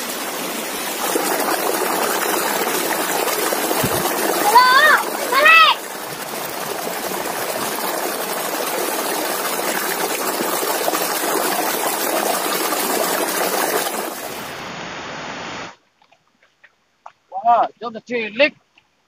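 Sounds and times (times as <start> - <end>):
stream water running: 0.0 - 19.0.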